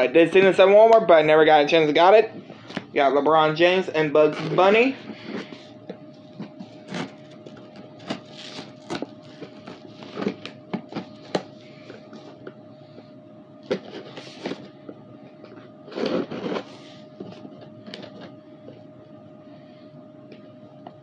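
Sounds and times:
faint steady hum: 0:00.0 - 0:21.0
packaging rustling: 0:04.5 - 0:12.6.

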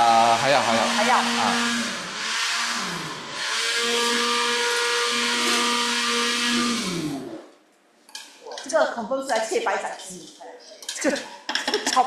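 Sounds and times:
electric food chopper motor: 0:00.0 - 0:07.5.

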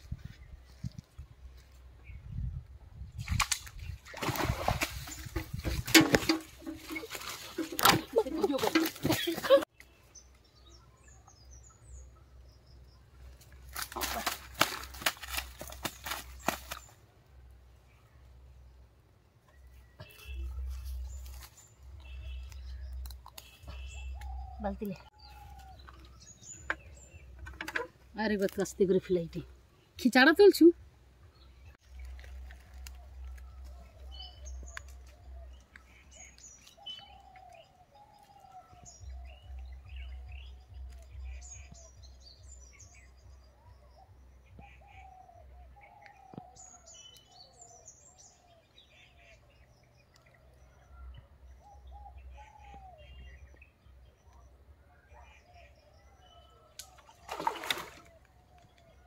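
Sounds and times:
small birds chirping: 0:06.7 - 0:59.0
crackles in dry leaf litter: 0:13.3 - 0:17.0, 0:20.0 - 0:24.4, 0:31.8 - 0:41.8.

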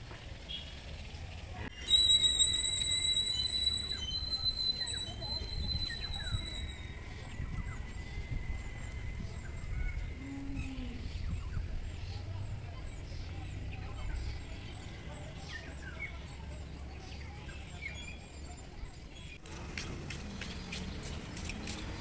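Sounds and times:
high-pitched whistling tone: 0:01.7 - 0:10.7.

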